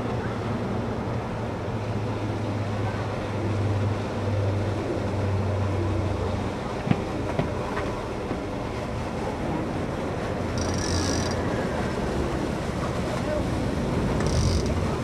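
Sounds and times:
outboard motors droning: 0.0s - 15.0s
wind and water rushing: 0.0s - 15.0s
sharp clicks: 10.6s - 11.4s, 14.2s - 14.8s.

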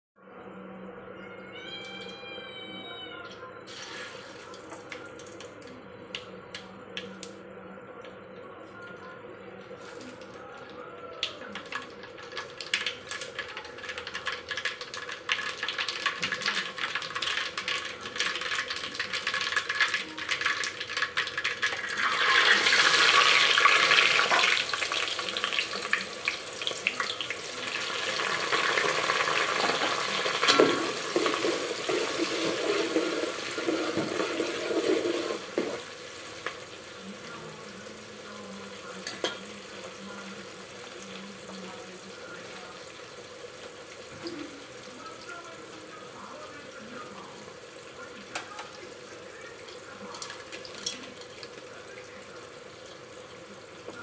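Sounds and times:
onions frying with a sizzle: 11.2s - 54.0s
spices sizzling in hot oil: 11.2s - 54.0s
spoon scraping a pot: 30.5s - 35.8s.

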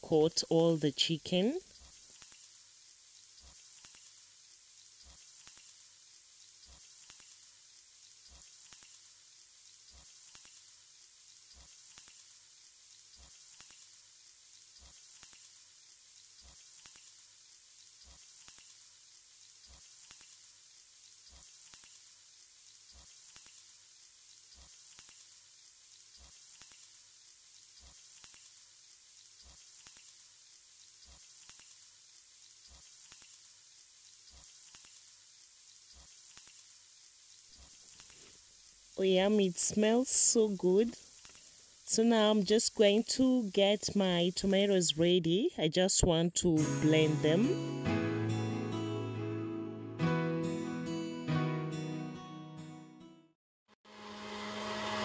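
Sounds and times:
chicken sizzling in a pan: 1.6s - 43.0s.

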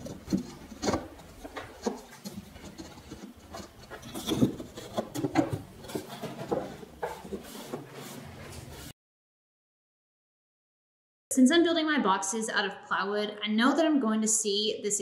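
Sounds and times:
light wooden knocks and rubs: 0.0s - 8.9s.

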